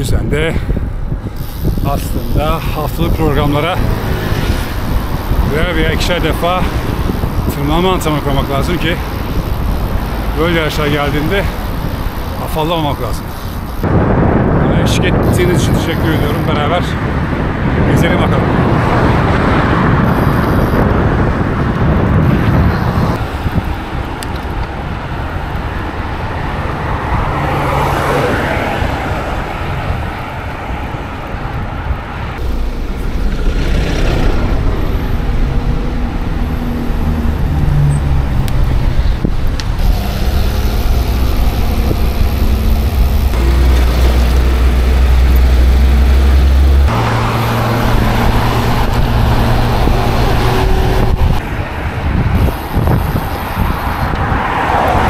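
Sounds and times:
cars passing: 0:00.0 - 0:55.0
bus engine running: 0:00.8 - 0:14.5, 0:24.8 - 0:55.0.

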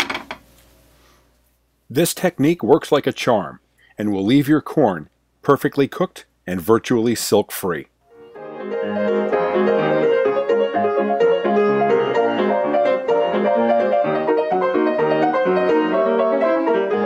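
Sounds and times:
quick piano tune: 0:08.2 - 0:17.0.

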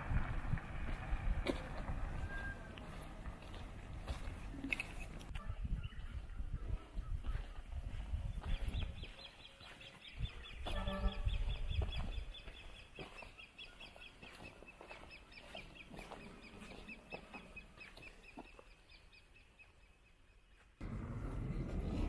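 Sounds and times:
low rumble: 0:00.0 - 0:04.3, 0:20.8 - 0:22.0.

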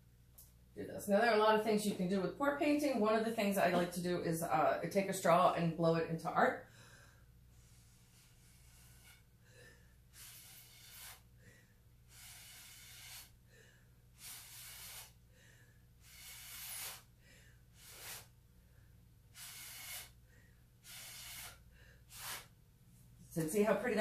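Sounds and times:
breath blown through straw: 0:07.6 - 0:09.3, 0:10.1 - 0:11.3, 0:12.1 - 0:13.4, 0:14.2 - 0:15.2, 0:16.0 - 0:17.1, 0:17.8 - 0:18.4, 0:19.3 - 0:20.2, 0:20.8 - 0:22.5.

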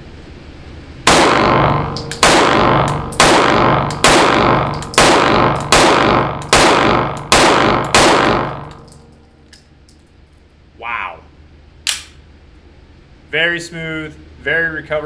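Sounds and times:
pistol shots indoors: 0:01.0 - 0:09.5.

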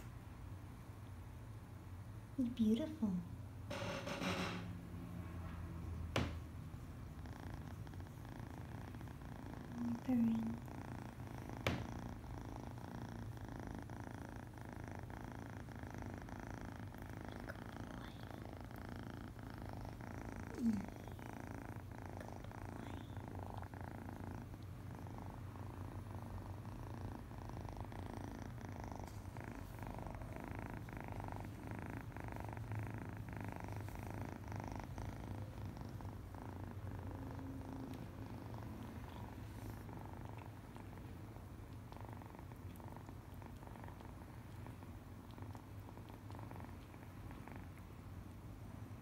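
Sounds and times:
kitten purring: 0:00.0 - 0:49.0.

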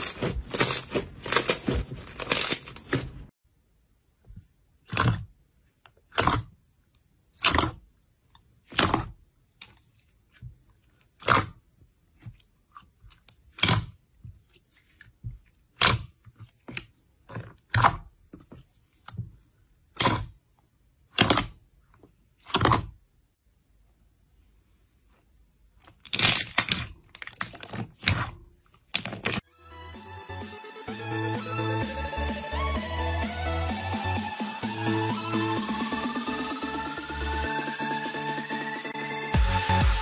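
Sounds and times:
slime squishing: 0:00.0 - 0:03.3, 0:04.7 - 0:23.2, 0:25.6 - 0:29.5.

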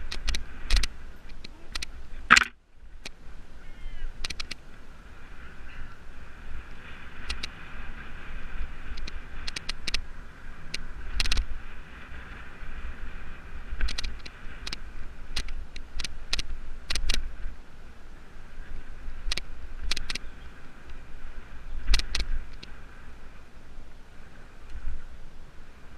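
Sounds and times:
bike clicks and rattles: 0:00.0 - 0:03.2, 0:04.2 - 0:04.6, 0:07.2 - 0:07.6, 0:08.8 - 0:10.0, 0:10.6 - 0:11.6, 0:13.7 - 0:17.4, 0:19.2 - 0:21.0, 0:21.8 - 0:22.7
wind rumbling on microphone: 0:00.0 - 0:25.9.

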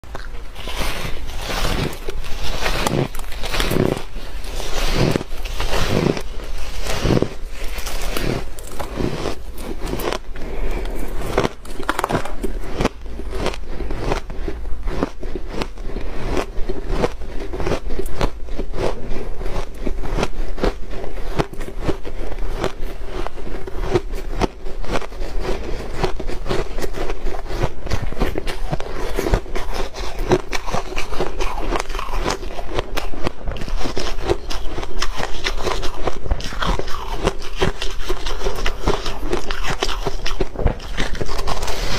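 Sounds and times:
ice being chewed crunching: 0:00.0 - 0:41.9.

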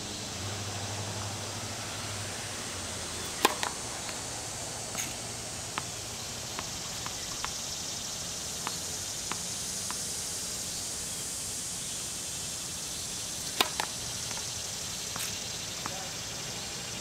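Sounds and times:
outdoor hiss: 0:00.0 - 0:17.0
racket striking ball: 0:03.1 - 0:07.8, 0:08.5 - 0:10.2, 0:13.4 - 0:16.1
tennis ball bouncing on court: 0:03.2 - 0:10.2, 0:13.4 - 0:16.2.

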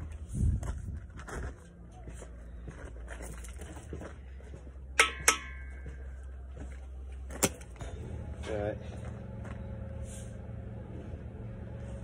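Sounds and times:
hammer striking metal: 0:05.0 - 0:06.2.

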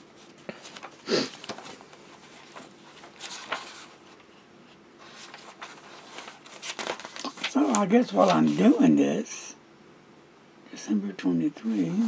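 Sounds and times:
notebook pages turning: 0:00.2 - 0:04.2, 0:05.0 - 0:09.0.

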